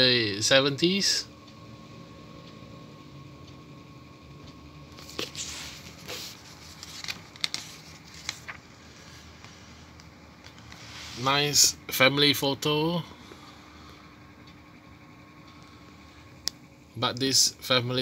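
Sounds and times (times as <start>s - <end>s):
faint steady hum: 0.0s - 18.0s
magazine pages turning: 5.0s - 8.8s.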